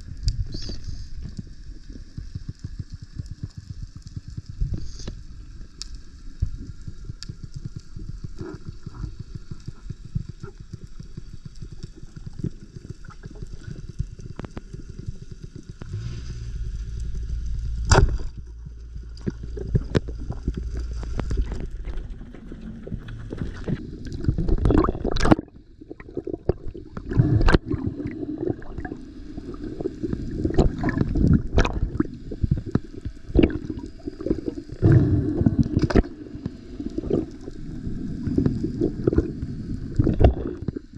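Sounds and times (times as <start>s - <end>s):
low steady hum: 0.0s - 40.9s
water rushing and gurgling: 15.8s - 40.9s
underwater clicks: 16.9s - 37.6s, 38.2s - 40.9s.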